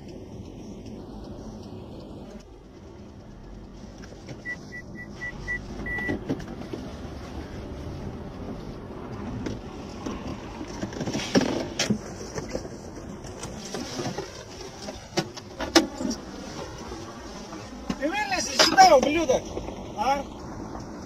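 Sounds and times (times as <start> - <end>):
car engine idling: 0.0 - 21.0
short high beeps: 4.4 - 6.1.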